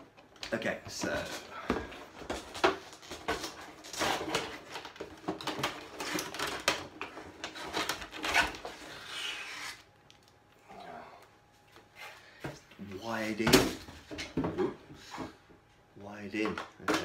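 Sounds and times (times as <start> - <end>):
packaging rustling and scraping: 1.0 - 9.9.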